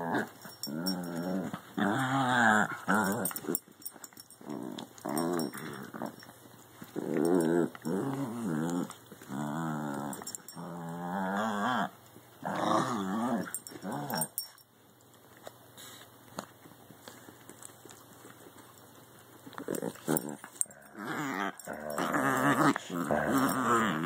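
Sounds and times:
dogs growling in play: 0.0 - 14.6, 19.4 - 24.0.

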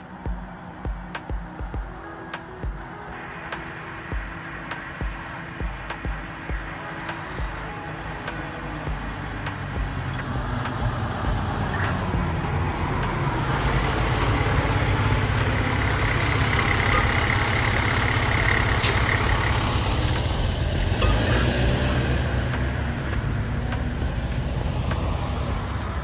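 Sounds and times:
fire engine driving past: 6.8 - 26.0.

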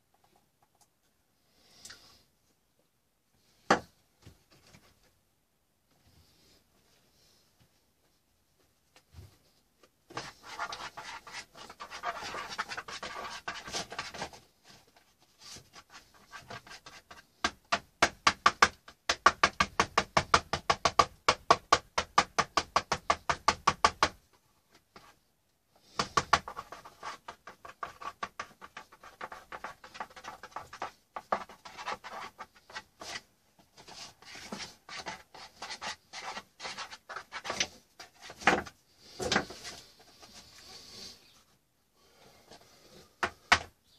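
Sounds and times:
paintbrush scrubbing wet paint: 10.2 - 14.2.

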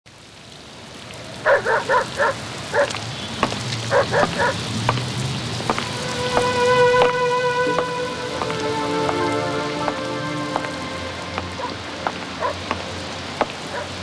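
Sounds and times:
steady rain: 0.1 - 14.0
dog barking: 1.4 - 3.0, 3.9 - 4.7, 12.4 - 12.7, 13.7 - 14.0
sharp taps: 3.4 - 9.3, 9.9 - 13.9
held music notes: 5.4 - 13.7.

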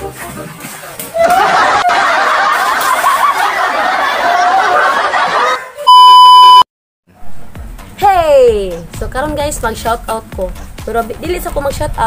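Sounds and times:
people laughing: 1.2 - 5.9
loud steady beep: 5.9 - 6.7.

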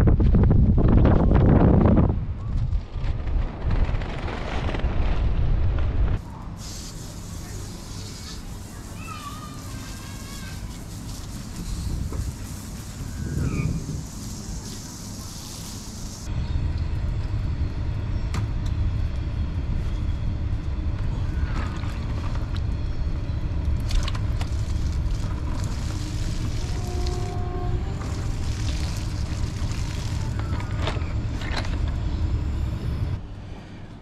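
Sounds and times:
low rumble: 0.0 - 6.5, 16.2 - 34.0
water splashing onto grass: 23.9 - 27.2, 28.0 - 30.6.

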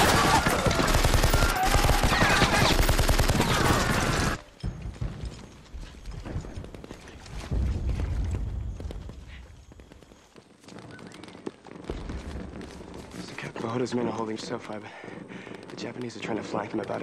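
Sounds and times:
rapid rifle and machine-gun fire: 0.0 - 4.4, 10.7 - 13.8.

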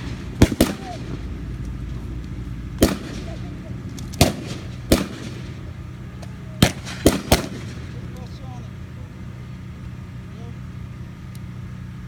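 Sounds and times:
blank gunshots: 0.0 - 1.2, 2.8 - 3.4, 4.2 - 5.6, 6.6 - 8.0.

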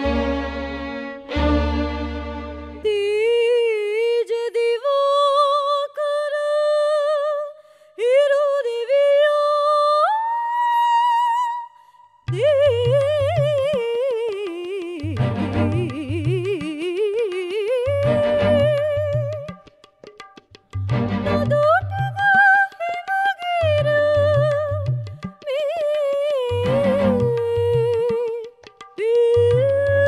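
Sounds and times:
low pulsing rhythmic accompaniment: 15.1 - 16.5, 20.8 - 22.0
soprano singing opera: 16.8 - 19.0.

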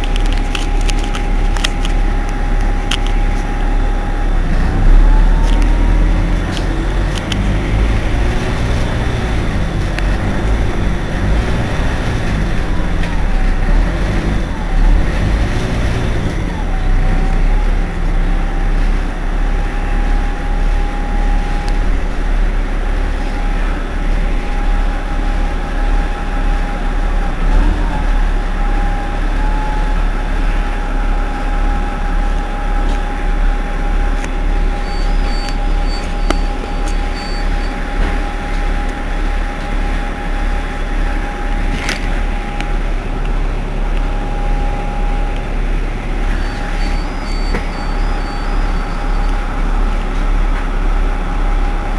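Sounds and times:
bus engine idling: 0.0 - 51.9
rapid high beeps: 34.7 - 37.8.

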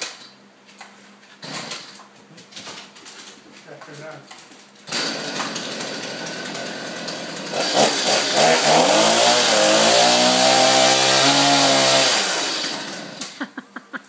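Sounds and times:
chainsaw engine revving: 4.9 - 13.4.

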